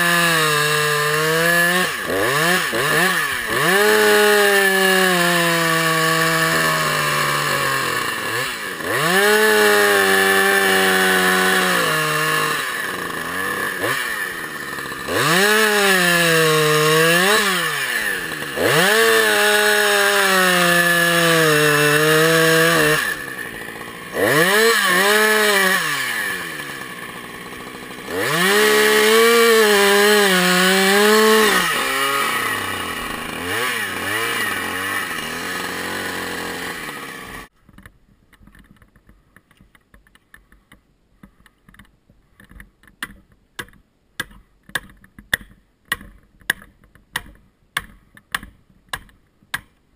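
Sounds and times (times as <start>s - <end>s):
chainsaw idling: 0.0s - 37.5s
chainsaw cutting log: 0.0s - 37.6s.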